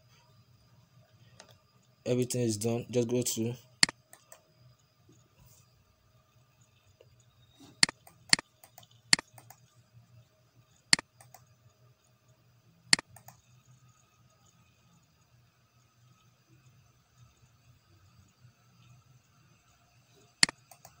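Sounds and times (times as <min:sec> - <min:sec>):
faint low hum: 0:00.0 - 0:21.0
computer mouse clicking: 0:03.8 - 0:04.4, 0:07.8 - 0:09.7, 0:10.9 - 0:11.6, 0:12.9 - 0:13.6, 0:20.4 - 0:21.0.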